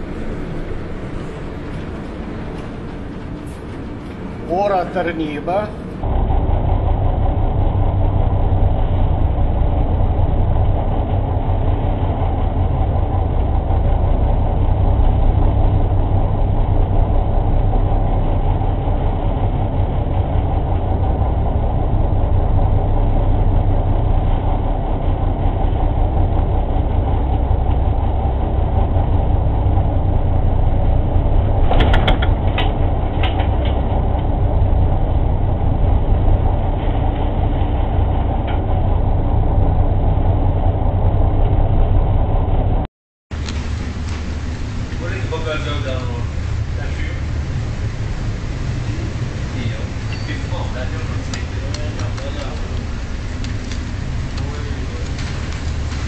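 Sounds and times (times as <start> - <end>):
ship engine droning: 0.0 - 56.0
sharp clicks or knocks: 31.7 - 33.8.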